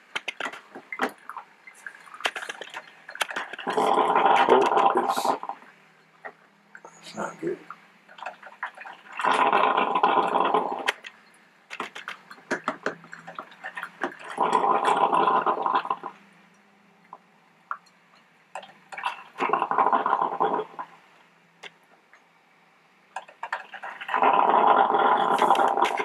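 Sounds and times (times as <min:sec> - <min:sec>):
drip coffee maker gurgling: 0:01.0 - 0:05.6, 0:08.1 - 0:11.1, 0:11.8 - 0:16.2, 0:17.1 - 0:20.9, 0:23.2 - 0:26.0.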